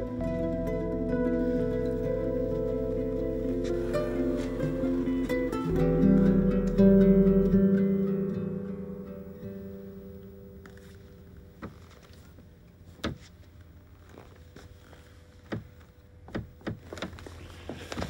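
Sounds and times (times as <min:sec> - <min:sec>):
acoustic guitar notes: 0:00.0 - 0:13.0.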